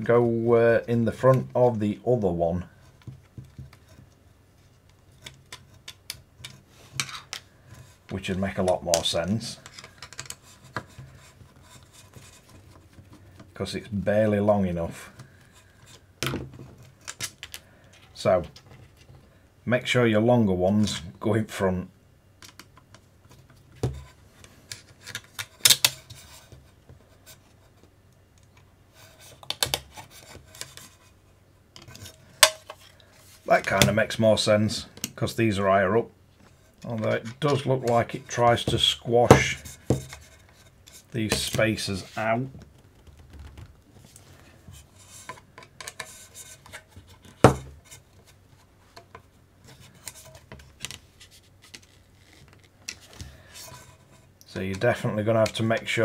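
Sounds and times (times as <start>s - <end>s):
plastic parts clicking and rubbing: 2.8s - 13.7s, 15.0s - 19.3s, 22.4s - 34.0s, 36.4s - 56.0s
plastic parts clicking and knocking: 5.1s - 7.9s, 8.6s - 13.6s, 15.2s - 19.2s, 22.4s - 27.0s, 29.3s - 30.9s, 31.7s - 33.0s, 42.5s - 43.8s.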